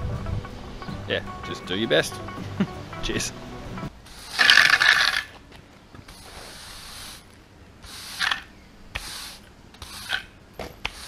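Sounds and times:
push broom scraping on concrete: 0:04.0 - 0:05.4, 0:06.0 - 0:11.0.

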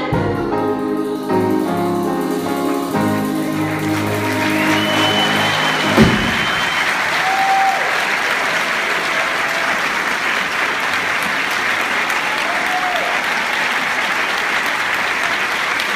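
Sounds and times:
audience applauding: 0:01.3 - 0:15.9
short calls from audience: 0:03.8 - 0:15.9.

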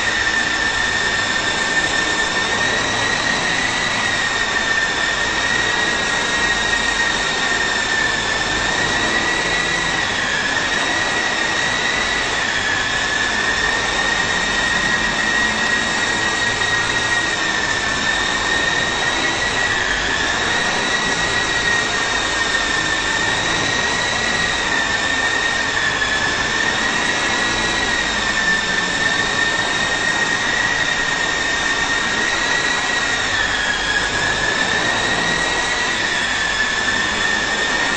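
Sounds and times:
toy helicopter rotor whine: 0:00.0 - 0:37.9.

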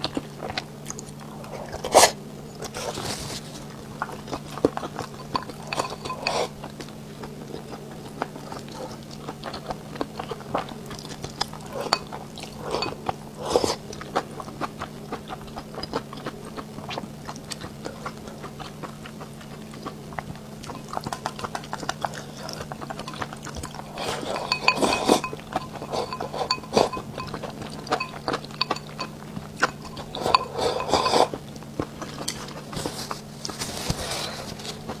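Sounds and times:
slurping: 0:00.9 - 0:06.7, 0:20.6 - 0:35.0
chopsticks clinking against bowls: 0:05.0 - 0:06.5, 0:11.7 - 0:13.1, 0:20.7 - 0:22.0, 0:23.0 - 0:31.4.

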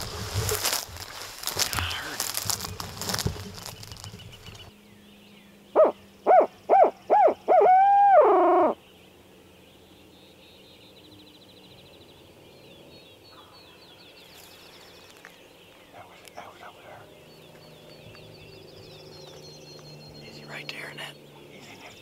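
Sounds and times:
faint songbird chirps: 0:01.6 - 0:22.0
owl call hoots: 0:05.8 - 0:08.8.

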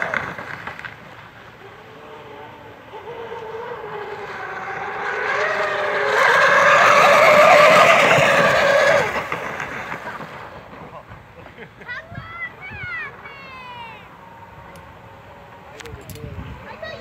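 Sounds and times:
model boat motor whine: 0:00.0 - 0:11.8.

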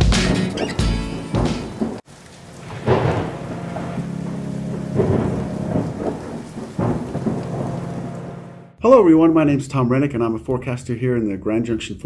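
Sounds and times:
thunder rumbling: 0:00.0 - 0:09.6
steady rain: 0:00.2 - 0:08.8
low steady drone: 0:02.2 - 0:08.8.

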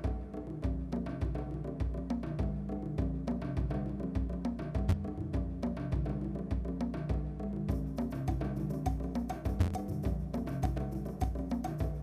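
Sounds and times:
intro music with deep drum beat: 0:00.0 - 0:12.0
sharp percussion strikes: 0:07.7 - 0:12.0.

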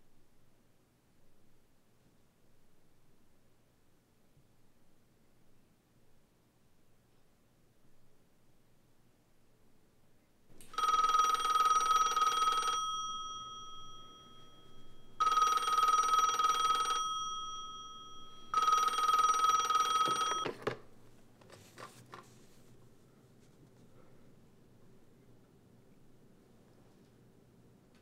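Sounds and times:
telephone ringing: 0:10.5 - 0:21.0.

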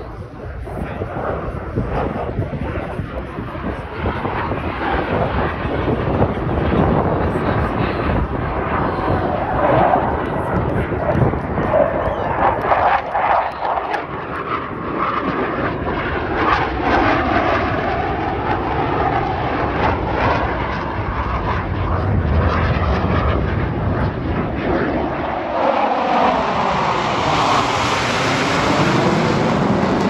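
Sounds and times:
jet engines flying low past: 0:00.0 - 0:30.0.

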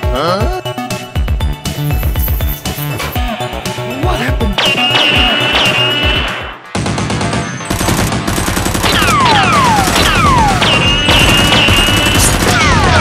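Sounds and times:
background music: 0:00.0 - 0:13.0
automatic gunfire: 0:04.6 - 0:13.0.

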